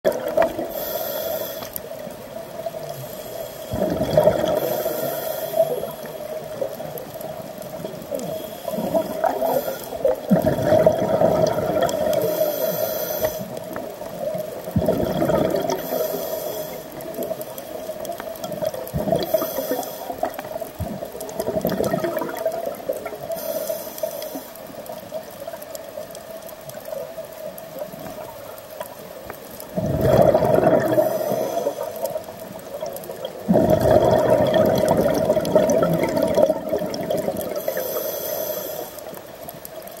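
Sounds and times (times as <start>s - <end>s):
exhaled bubbles rushing: 0.1s - 0.8s, 3.7s - 4.8s, 8.7s - 12.4s, 14.6s - 16.1s, 18.4s - 19.5s, 20.1s - 23.3s, 29.7s - 37.8s
regulator hissing inhalations: 0.6s - 2.0s, 2.8s - 3.8s, 4.5s - 6.4s, 8.1s - 10.3s, 12.1s - 13.7s, 15.8s - 17.9s, 19.2s - 20.5s, 23.2s - 24.8s, 31.0s - 32.2s, 37.6s - 39.2s.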